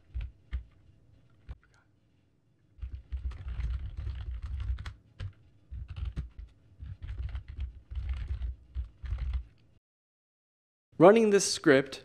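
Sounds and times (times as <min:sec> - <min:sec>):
typing on keyboard: 0:00.0 - 0:00.8, 0:02.8 - 0:09.6.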